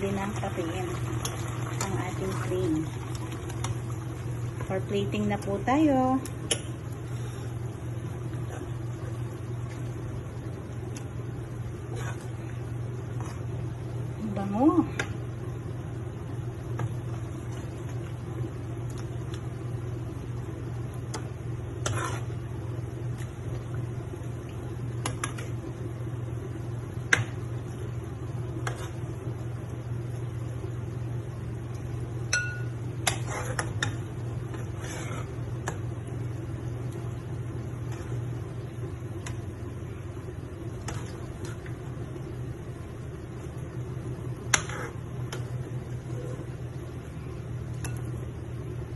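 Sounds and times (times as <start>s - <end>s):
steady low hum: 0.0s - 48.9s
metal spatula scraping wok: 21.8s - 22.4s.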